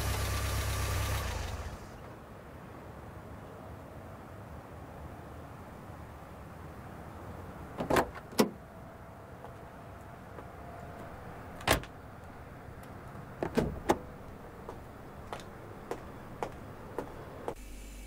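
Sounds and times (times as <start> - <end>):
sharp knocks and clunks: 13.1 - 14.1.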